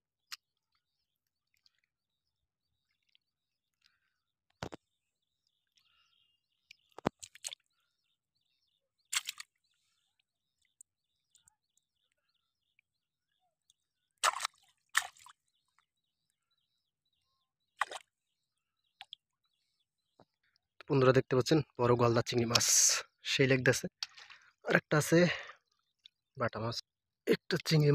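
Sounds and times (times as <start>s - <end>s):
wet squelches in mud and water: 4.6s - 16.0s, 17.8s - 18.2s, 18.9s - 19.4s, 23.9s - 24.6s
faint bird chirps: 15.5s - 20.6s.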